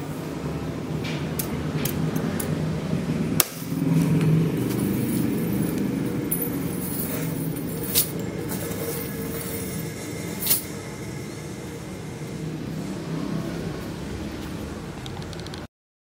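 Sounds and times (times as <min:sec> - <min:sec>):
chainmail clinking: 0:04.6 - 0:10.8.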